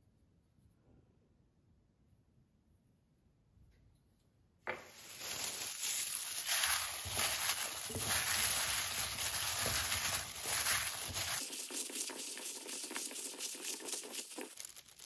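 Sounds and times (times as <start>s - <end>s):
plastic glove rustling: 4.7s - 15.0s
potatoes knocking in glass bowl: 4.7s - 15.0s.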